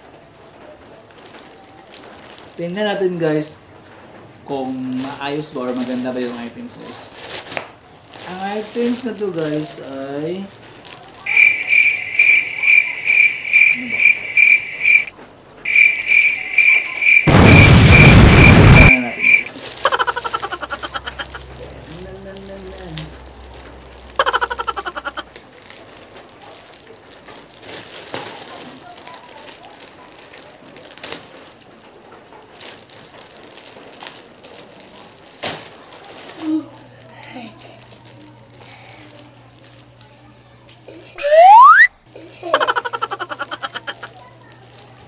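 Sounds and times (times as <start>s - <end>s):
packaging wrap crinkling: 1.0s - 2.8s, 4.6s - 15.0s, 18.8s - 40.0s, 42.5s - 45.0s
cricket chirping: 11.3s - 15.1s, 15.7s - 21.4s, 24.2s - 25.2s.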